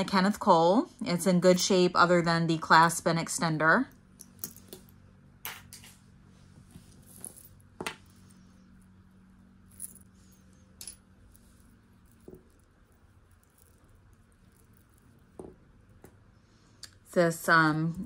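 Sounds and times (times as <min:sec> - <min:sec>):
faint low hum: 0:00.0 - 0:18.0
jewelry clinking and tapping: 0:04.2 - 0:05.9, 0:06.7 - 0:16.2.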